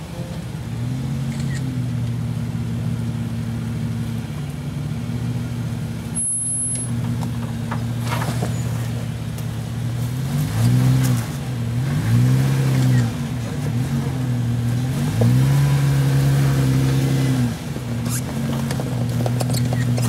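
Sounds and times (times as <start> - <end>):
car engine running low: 0.0 - 20.0
engine revving: 0.8 - 1.9, 10.0 - 20.0.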